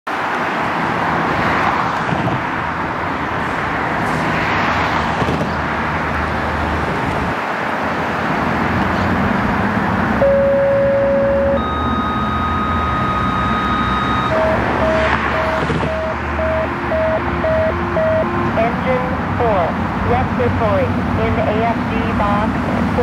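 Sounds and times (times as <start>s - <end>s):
street traffic: 0.0s - 23.0s
ambulance engine running: 2.2s - 23.0s
steady tone: 10.2s - 22.4s.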